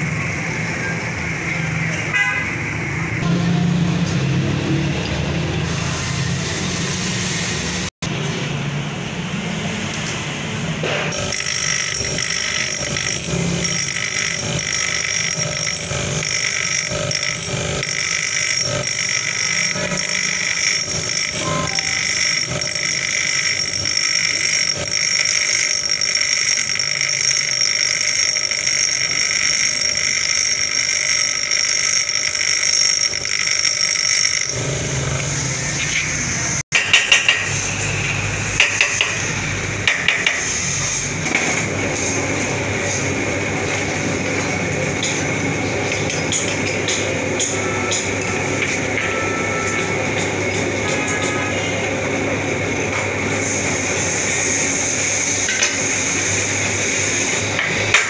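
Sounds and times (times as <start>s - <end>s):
bench grinder whining: 11.1s - 36.6s.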